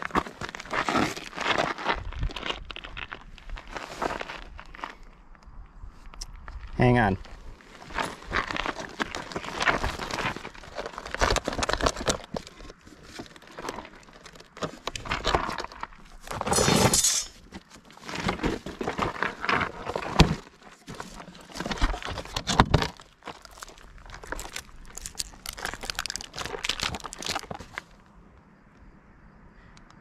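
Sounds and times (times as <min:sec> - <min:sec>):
clay crinkling and crumbling: 0:00.0 - 0:05.1, 0:06.7 - 0:28.0
rustling scrape: 0:03.4 - 0:04.8, 0:07.6 - 0:27.9.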